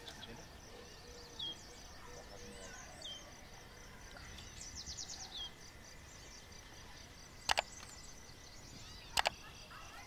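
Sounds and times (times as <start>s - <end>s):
small bird chirping: 0.0s - 10.0s
sharp clicks: 7.4s - 8.0s, 9.1s - 9.4s.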